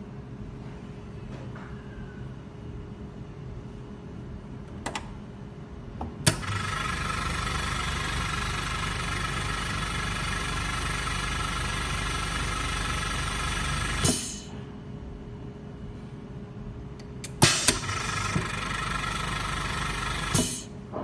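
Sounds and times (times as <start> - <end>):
air compressor running: 6.2 - 14.7, 17.2 - 20.8.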